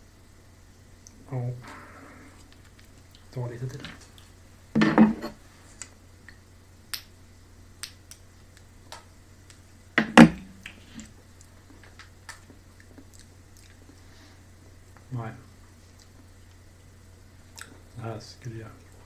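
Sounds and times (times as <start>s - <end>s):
lip smacks and tongue clicks: 11.4s - 14.0s, 17.5s - 17.8s.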